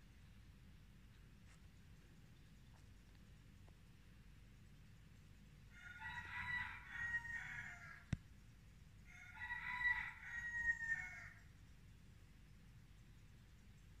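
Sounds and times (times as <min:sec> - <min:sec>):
rooster crowing: 0:05.7 - 0:08.2, 0:09.0 - 0:11.4.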